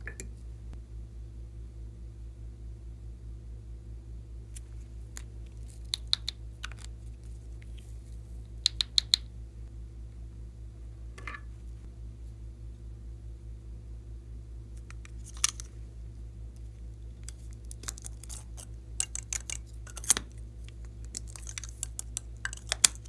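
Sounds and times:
steady low hum: 0.0s - 23.0s
plastic containers clicking and snapping: 17.2s - 23.0s.

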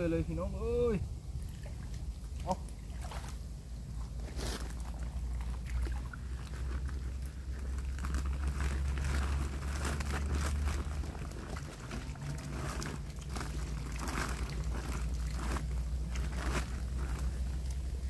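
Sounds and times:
river water splashing: 0.6s - 18.0s
plastic sack rustling: 6.3s - 18.0s.

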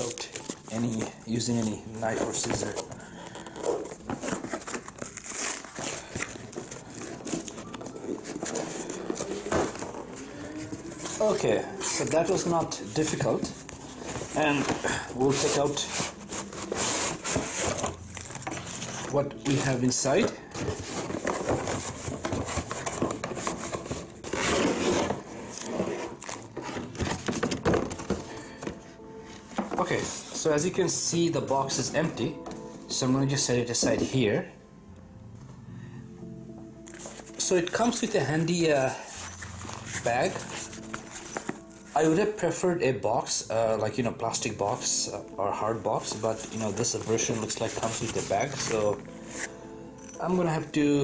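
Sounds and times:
cardboard crackling and crinkling: 0.0s - 30.6s, 37.0s - 42.4s, 45.7s - 49.5s
tape ripping off cardboard: 2.3s - 9.8s.

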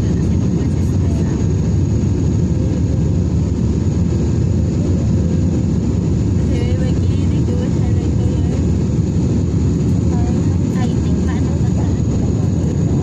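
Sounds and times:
airliner engine and airflow rumble: 0.0s - 13.0s.

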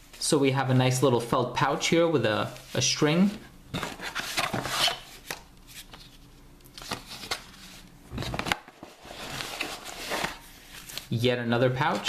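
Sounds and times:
paper and pouches rustling: 6.8s - 11.2s.

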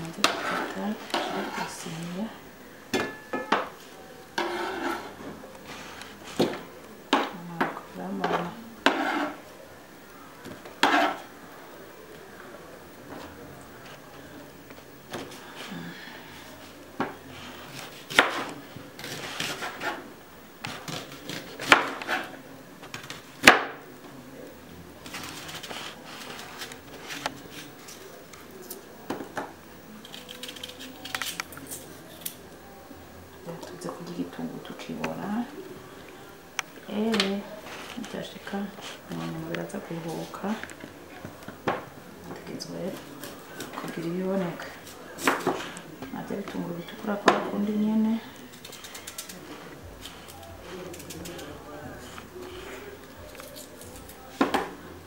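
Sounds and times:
knife cutting and scraping: 4.4s - 5.2s, 8.9s - 9.4s, 10.8s - 11.2s.

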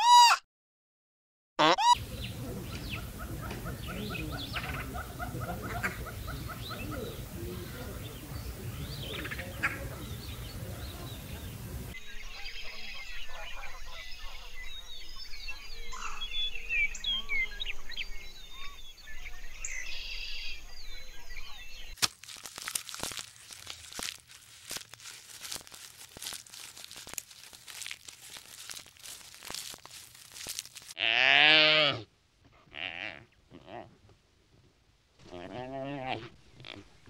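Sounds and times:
leafy branches crackling and tearing: 22.0s - 31.0s.

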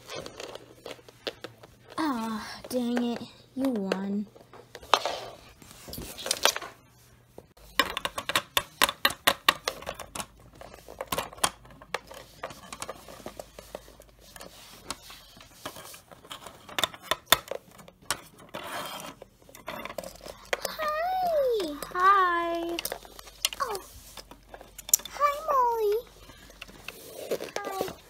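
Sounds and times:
plastic figures tapping on wooden floor: 7.7s - 12.9s.

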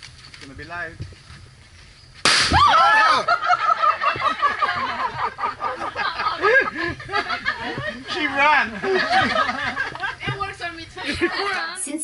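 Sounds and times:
firecracker bang: 2.2s - 2.8s.

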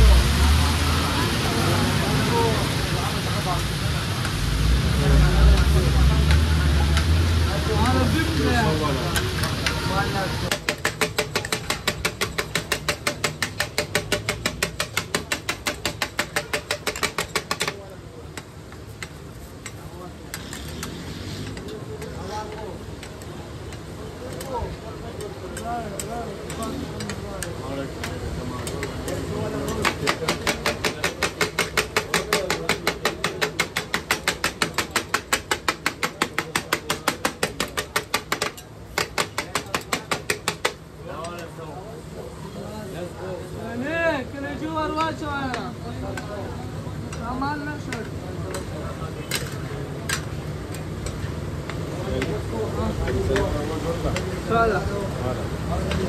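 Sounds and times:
low sizzle: 0.0s - 10.4s
metal spatulas striking griddle: 10.5s - 17.8s, 25.2s - 41.5s.

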